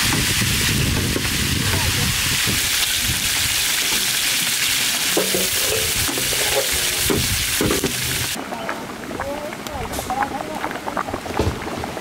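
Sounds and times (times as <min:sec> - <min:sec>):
fish frying in hot oil: 0:00.0 - 0:08.4.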